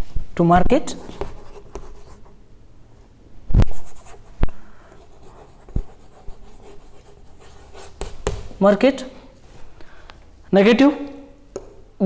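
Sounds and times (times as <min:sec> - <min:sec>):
chalk scraping strokes: 0:03.7 - 0:08.3
chalk tapping on board: 0:05.4 - 0:08.5.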